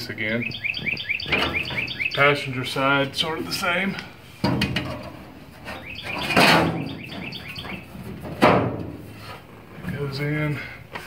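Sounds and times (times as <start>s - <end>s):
high chirping squeaks: 0.4s - 2.5s, 5.7s - 8.0s
metal scraping: 3.2s - 9.8s.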